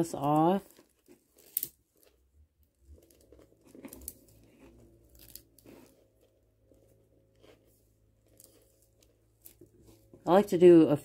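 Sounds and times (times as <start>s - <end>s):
plastic beads clicking and rattling: 0.0s - 4.5s, 5.1s - 5.9s.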